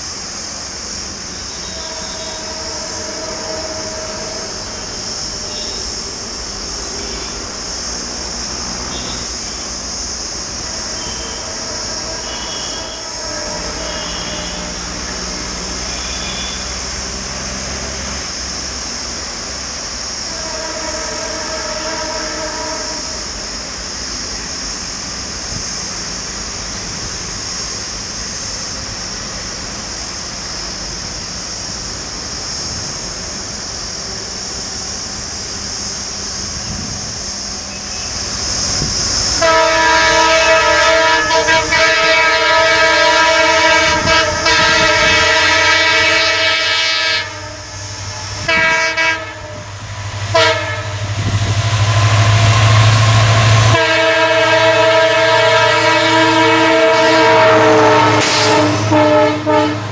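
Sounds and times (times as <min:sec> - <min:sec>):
locomotive engine drone: 0:00.0 - 0:59.9
locomotive horn blasts: 0:01.4 - 0:05.9, 0:08.8 - 0:09.7, 0:10.7 - 0:16.9, 0:20.3 - 0:23.2, 0:39.4 - 0:59.9.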